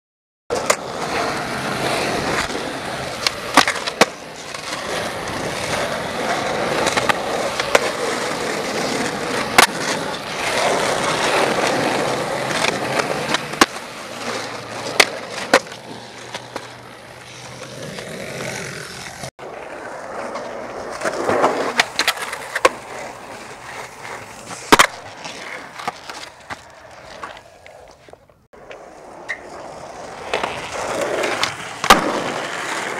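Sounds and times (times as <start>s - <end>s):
skateboard clacking on concrete: 0.5s - 32.9s
skateboard wheels rolling on concrete: 0.5s - 32.9s.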